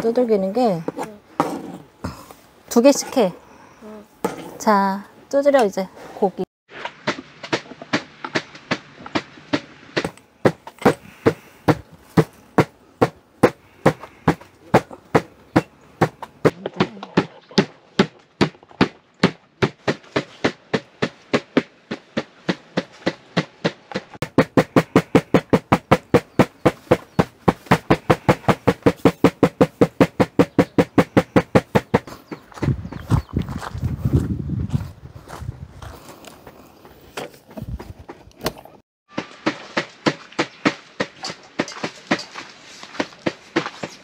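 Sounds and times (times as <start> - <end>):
meat being pounded flat: 17.2 - 32.1.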